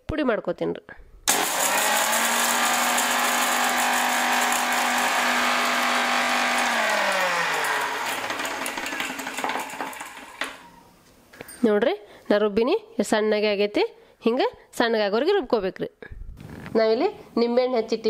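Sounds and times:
mixer grinder whining: 1.3 - 11.0.

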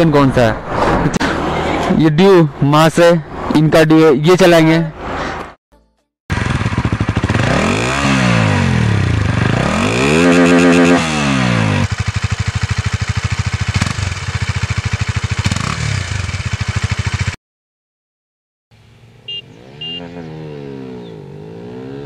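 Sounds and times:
motorcycle engine accelerating: 6.3 - 17.4, 18.8 - 22.0.

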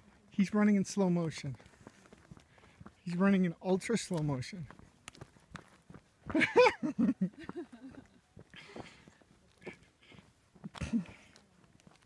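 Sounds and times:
footsteps on gravel: 1.0 - 12.0.

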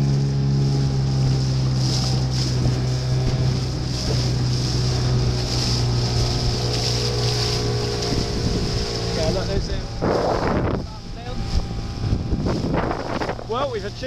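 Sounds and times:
boat engine humming: 0.0 - 14.0
water rushing past hull: 0.0 - 14.0
wind: 0.0 - 14.0.

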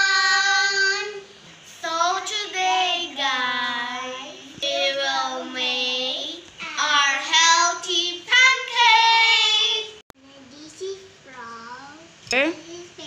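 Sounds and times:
young children singing: 0.0 - 10.0.

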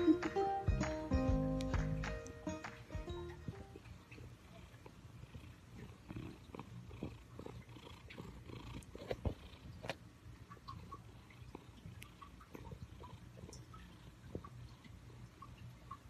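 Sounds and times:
cat purring: 3.2 - 16.0.

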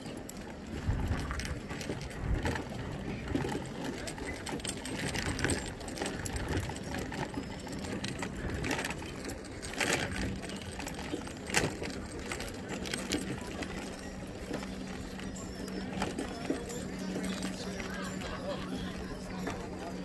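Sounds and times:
basket and frame rattling: 0.0 - 20.0
scooter rolling on wooden planks: 0.0 - 20.0.

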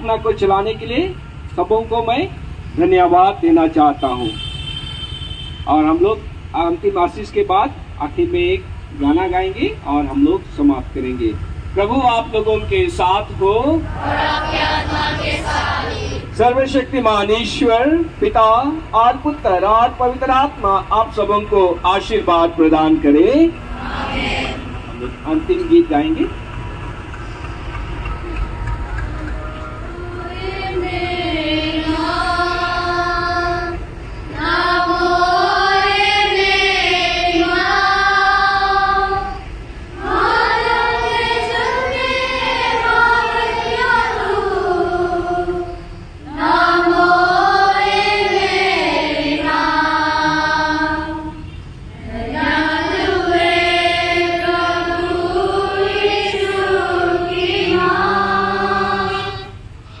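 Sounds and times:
group singing a hymn: 13.6 - 16.4, 23.6 - 25.2, 29.7 - 59.7.

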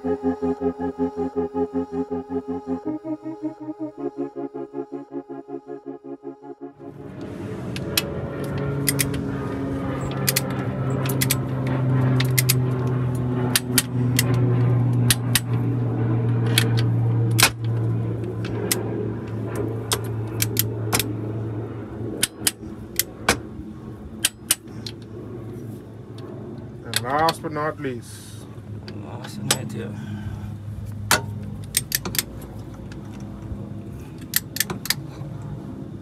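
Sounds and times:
steady low hum: 0.0 - 36.0
ratchet and socket clicking: 8.8 - 9.1, 34.2 - 35.0.

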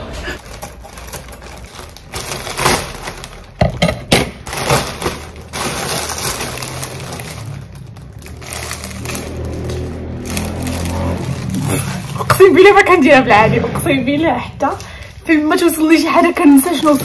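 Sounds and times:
plastic packaging rustling: 0.3 - 13.0, 14.8 - 17.0
scissors cutting plastic packaging: 0.4 - 12.5
plastic packaging crinkling: 0.4 - 13.0, 15.6 - 17.0.

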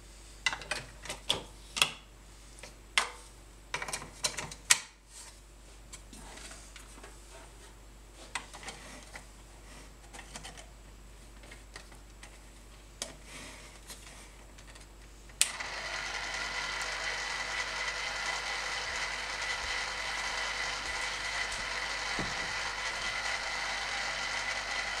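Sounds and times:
small motor whining: 15.5 - 25.0.

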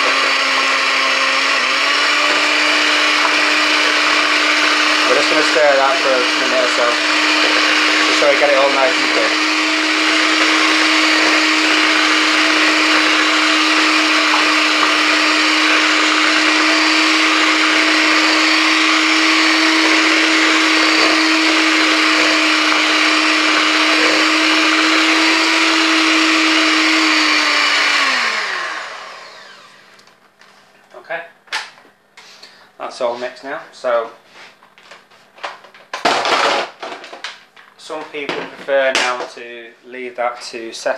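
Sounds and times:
electric hand mixer running: 0.0 - 30.1.

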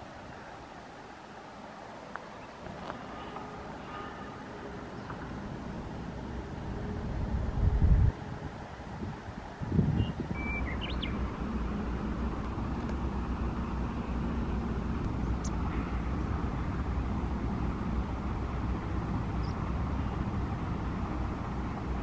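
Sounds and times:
low outdoor rumble: 0.0 - 22.0
high bird chirps: 10.0 - 11.2.

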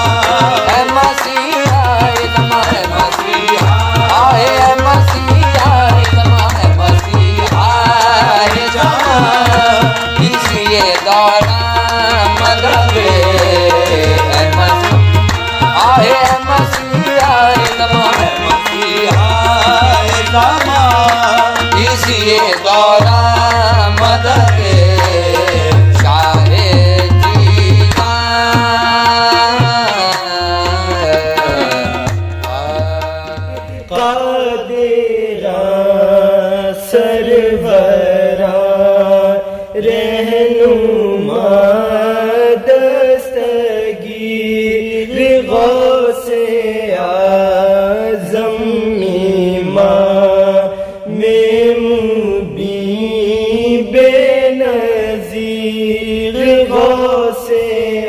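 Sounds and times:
devotional music with drum beat: 0.0 - 33.9
voices singing long held notes: 0.0 - 58.0.

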